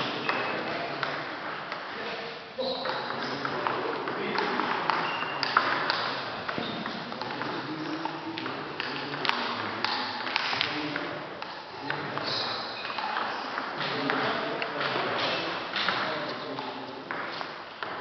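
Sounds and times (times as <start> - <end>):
ping-pong ball bouncing: 2.8 - 14.7.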